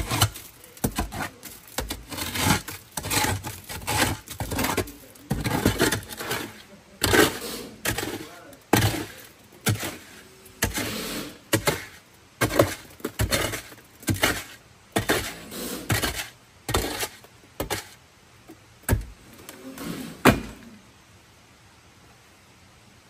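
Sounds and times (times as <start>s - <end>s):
stones pouring out: 0.0s - 17.9s
shovel scraping gravel: 0.0s - 18.0s, 19.5s - 20.6s.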